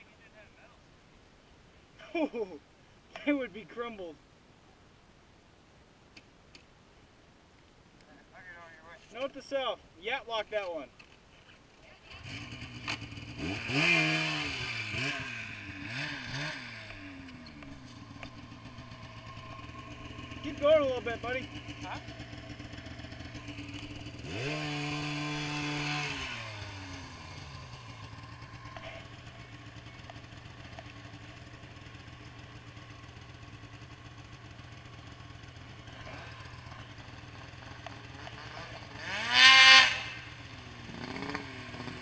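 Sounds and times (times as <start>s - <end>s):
snowmobile engines idling: 12.0s - 42.0s
snowmobile throttle revving: 12.1s - 29.5s, 38.0s - 42.0s.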